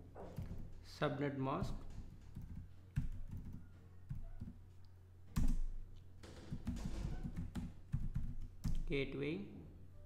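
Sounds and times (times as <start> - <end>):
computer keyboard keystrokes: 1.9 - 4.5, 6.6 - 8.9.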